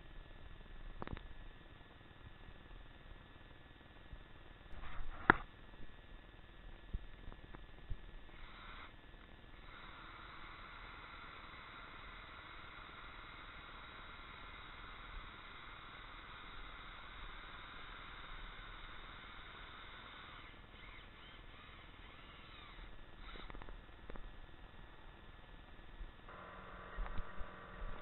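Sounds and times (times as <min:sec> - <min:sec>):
cordless drill drilling wood: 0:08.3 - 0:09.0, 0:09.6 - 0:23.7, 0:26.3 - 0:28.0.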